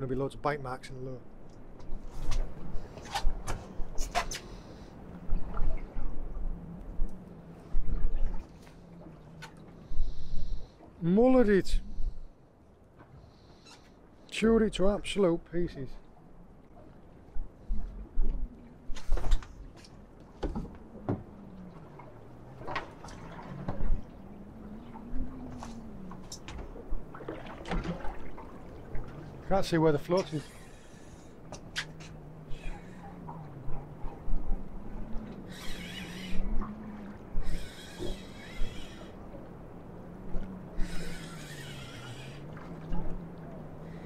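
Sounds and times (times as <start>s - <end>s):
low wavering hum: 1.2s - 11.0s, 16.0s - 29.6s, 30.2s - 44.0s
water lapping against boat hull: 1.5s - 11.0s, 15.9s - 44.0s
splashes: 21.6s - 29.5s
fishing reel whirring: 35.4s - 36.6s, 37.4s - 39.2s, 40.8s - 42.5s.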